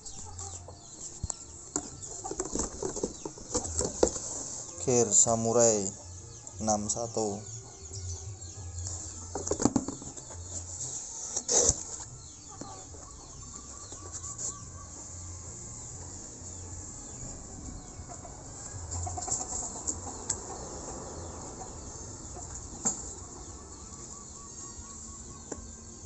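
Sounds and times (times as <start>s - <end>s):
chicken clucking: 9.1s - 15.2s, 17.7s - 25.7s.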